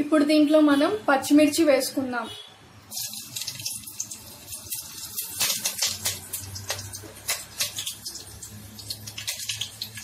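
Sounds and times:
chillies sizzling and popping in oil: 2.8 - 10.0.

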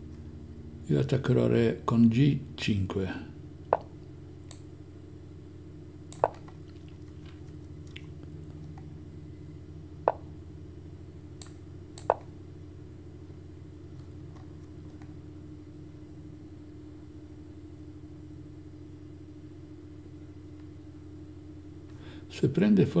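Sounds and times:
steady low hum: 0.0 - 23.0
chess move clicks: 10.1 - 10.3, 11.4 - 12.3.

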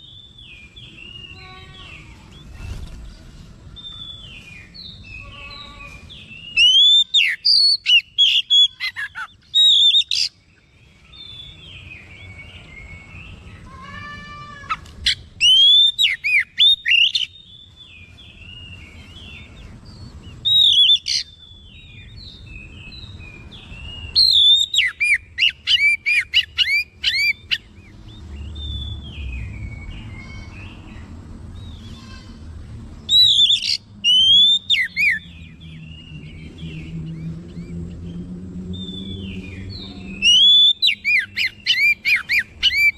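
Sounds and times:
bird whistled song bursts: 6.4 - 10.3, 15.0 - 23.2, 23.8 - 30.5, 33.1 - 37.8, 38.7 - 42.9.

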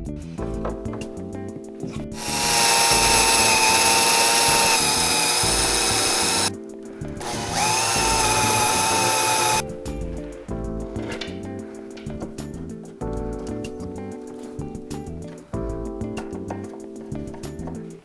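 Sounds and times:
background music: 0.0 - 18.0
cordless drill whining: 2.2 - 6.5, 7.2 - 9.6.

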